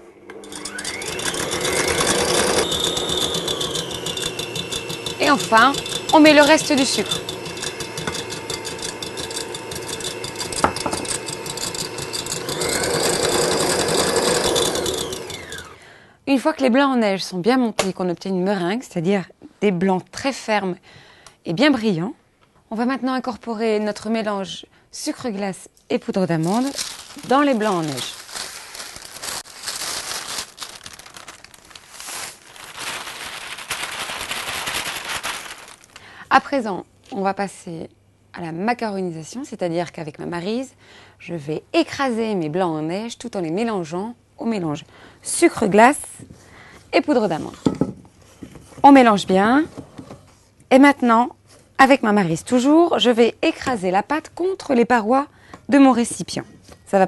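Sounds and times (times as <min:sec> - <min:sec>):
stand mixer whisking: 0:00.3 - 0:15.8
paper crinkling: 0:26.3 - 0:36.1.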